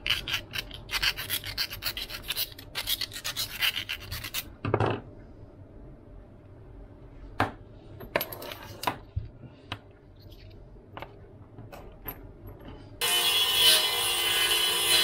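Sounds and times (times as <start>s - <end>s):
table saw cutting board: 13.0s - 15.0s.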